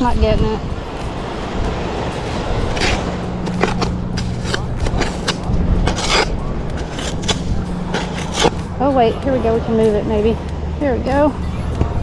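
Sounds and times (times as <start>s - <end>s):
steady low hum: 0.0s - 12.0s
hands digging through coarse sand: 2.7s - 8.6s.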